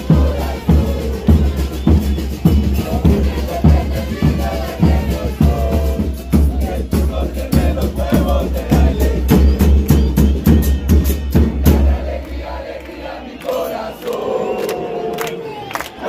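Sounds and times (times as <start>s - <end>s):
bass drums beating: 0.0s - 12.6s
crowd chanting: 0.0s - 16.0s.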